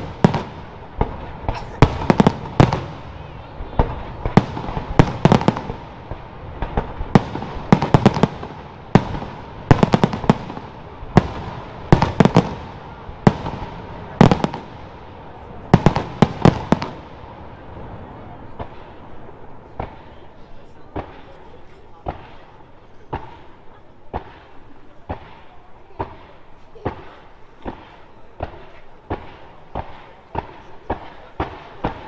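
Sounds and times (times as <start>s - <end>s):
firework bangs: 0.0s - 32.0s
hiss of burning fireworks: 0.0s - 32.0s.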